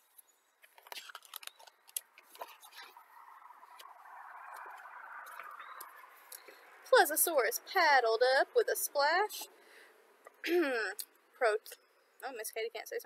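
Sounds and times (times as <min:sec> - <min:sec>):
soft paper rustle: 0:00.0 - 0:03.1
book pages turning: 0:00.1 - 0:03.0
sharp paper ticks: 0:00.6 - 0:03.0.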